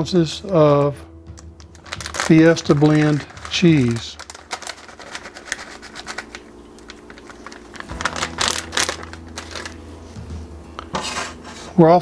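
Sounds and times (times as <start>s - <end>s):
plastic bag crinkling: 1.6s - 9.8s.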